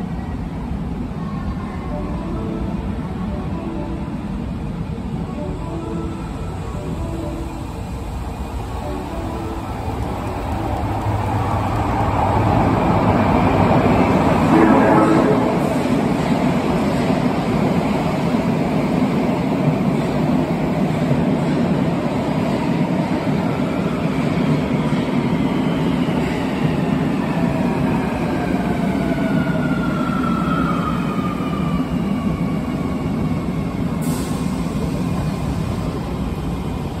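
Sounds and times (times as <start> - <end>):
wheels rumbling on rails: 6.2 - 23.6.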